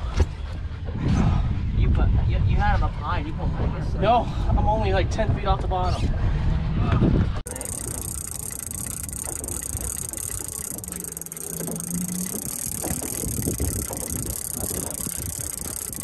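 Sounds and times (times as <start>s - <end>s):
low hum: 7.5s - 16.0s.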